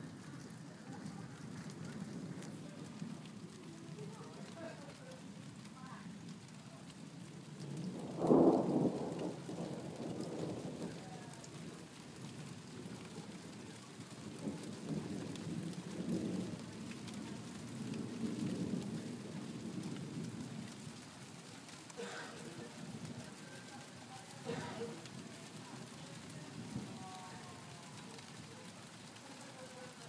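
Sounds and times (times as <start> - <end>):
low thunder rumble: 0.0 - 5.5, 7.1 - 21.1, 21.9 - 28.5
thunder clap: 7.6 - 11.7.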